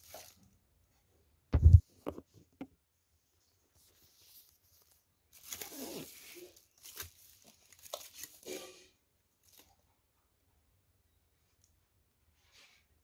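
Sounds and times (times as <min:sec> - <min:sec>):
packing paper crumpling and tearing: 0:00.0 - 0:00.5, 0:04.7 - 0:08.8.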